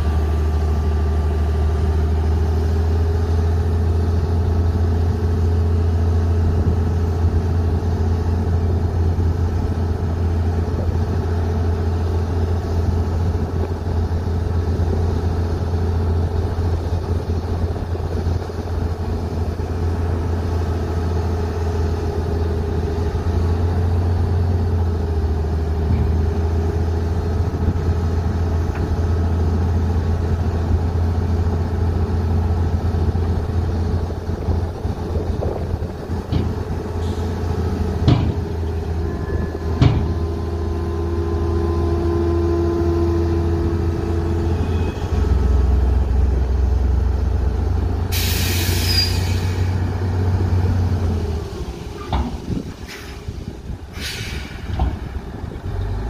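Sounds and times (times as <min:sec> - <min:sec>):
diesel truck engine running: 0:00.0 - 0:56.0
sharp metallic knocks: 0:38.0 - 0:38.5, 0:39.7 - 0:40.2
air release hiss: 0:48.1 - 0:49.8, 0:52.7 - 0:55.1.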